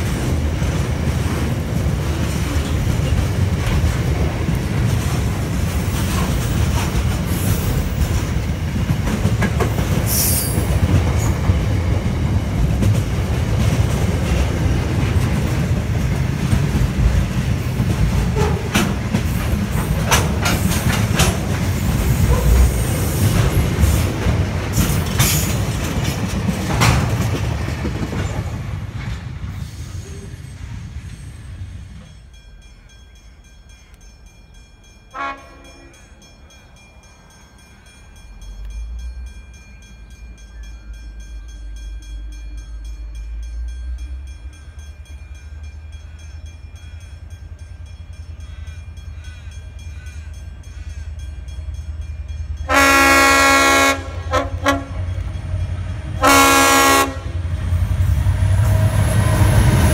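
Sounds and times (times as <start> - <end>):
train wheel clatter: 0.0 - 32.4
freight train rumbling past: 0.0 - 59.9
short train horn toot: 35.1 - 36.0, 52.7 - 55.1, 56.2 - 57.4.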